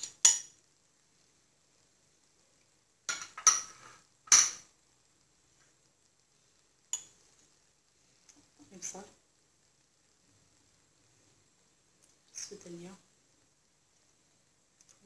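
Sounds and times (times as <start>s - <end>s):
utensils clinking against frying pan: 3.1s - 4.6s.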